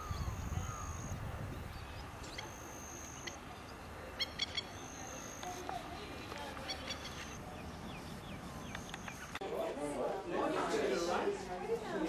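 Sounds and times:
wind rumble on microphone: 0:00.0 - 0:02.5
bird chirps: 0:00.0 - 0:09.4.

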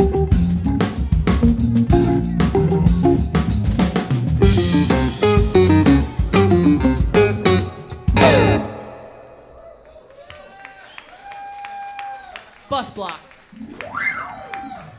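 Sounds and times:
drum kit steady beat: 0:00.0 - 0:09.6
electric guitar: 0:00.0 - 0:09.7
keyboard: 0:00.0 - 0:09.9.

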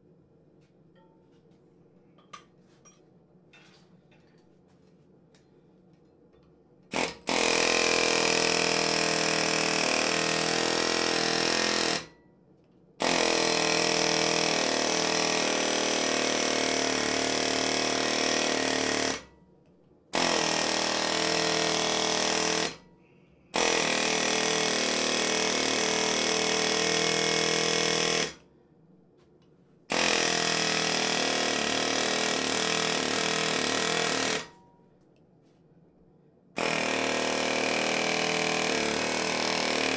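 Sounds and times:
power tool working metal: 0:36.6 - 0:39.9.

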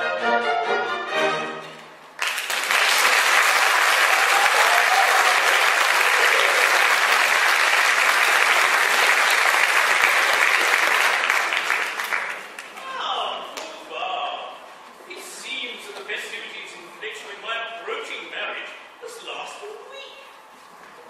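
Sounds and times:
audience applauding: 0:02.2 - 0:12.8.

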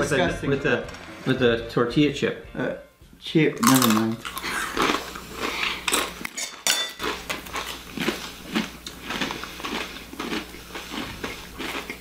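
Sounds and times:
chips crunching while chewed: 0:03.6 - 0:12.0.

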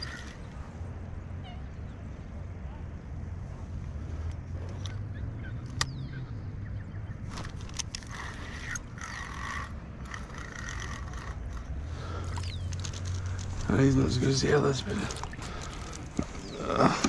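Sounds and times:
fishing reel whirring and ticking: 0:00.0 - 0:00.6, 0:07.3 - 0:13.5.

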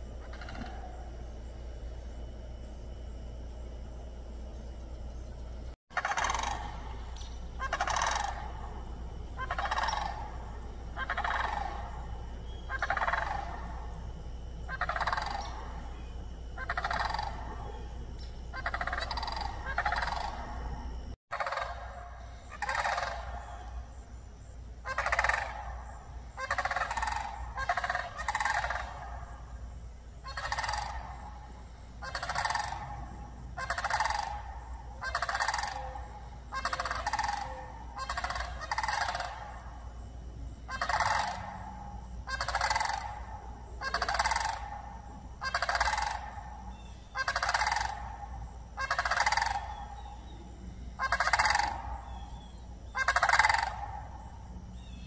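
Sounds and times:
turkeys gobbling: 0:00.2 - 0:01.1, 0:05.9 - 0:14.0, 0:14.7 - 0:16.0, 0:16.6 - 0:20.7, 0:21.3 - 0:23.8, 0:24.8 - 0:29.4, 0:30.2 - 0:39.9, 0:40.7 - 0:50.2, 0:51.0 - 0:54.2.

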